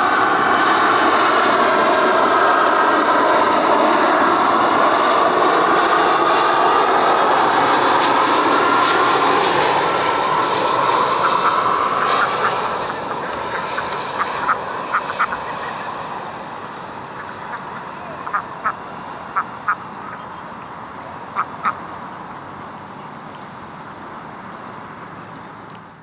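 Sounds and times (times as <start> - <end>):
jet engines rushing: 0.0 - 26.0
quack-like bird calls: 11.1 - 22.7.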